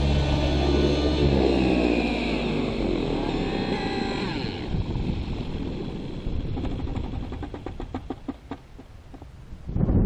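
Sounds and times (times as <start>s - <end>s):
model helicopter engine winding down: 0.0s - 8.6s.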